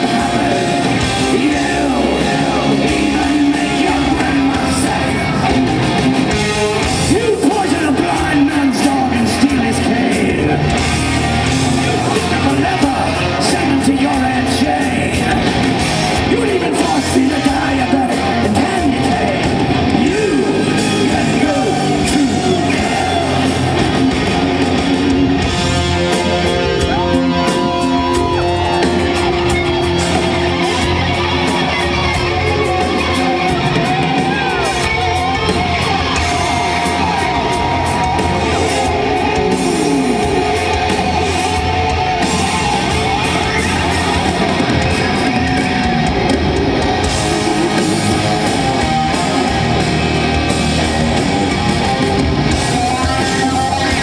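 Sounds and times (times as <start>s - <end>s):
live hard rock band: 0.0s - 54.0s
man singing and yelling: 0.0s - 54.0s.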